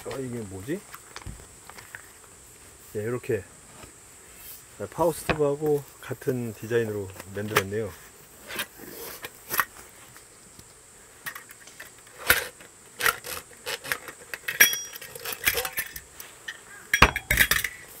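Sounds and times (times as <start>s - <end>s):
metal stove parts clinking: 14.3s - 16.1s, 16.9s - 17.8s.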